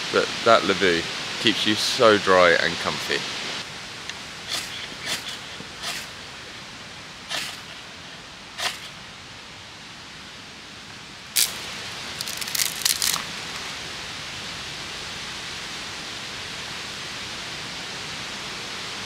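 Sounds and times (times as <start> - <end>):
steady hiss: 0.0 - 19.0
tinder crackling: 3.6 - 9.1, 11.2 - 13.8
ferro rod scraped with striker: 4.5 - 6.1, 7.3 - 7.7, 8.6 - 8.9.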